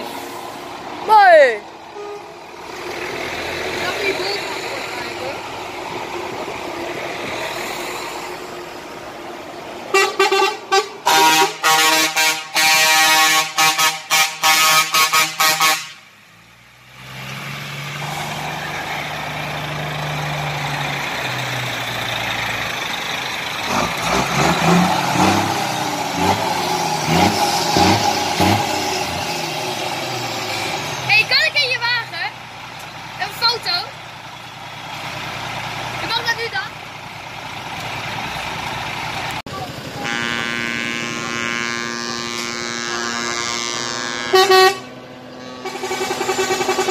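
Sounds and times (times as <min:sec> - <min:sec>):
diesel truck engines revving: 0:00.0 - 0:46.9
truck air horns honking: 0:01.9 - 0:02.6, 0:09.9 - 0:16.2, 0:39.9 - 0:46.9.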